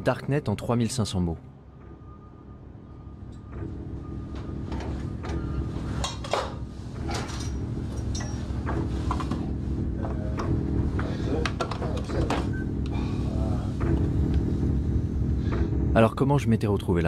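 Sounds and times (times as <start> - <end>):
low steady drone: 0.0 - 17.0
metallic clanks and rattles: 6.0 - 9.4.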